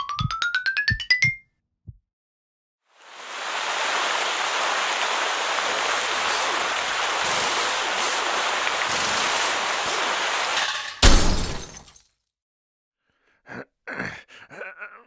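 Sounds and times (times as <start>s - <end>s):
water rushing: 2.9s - 11.5s.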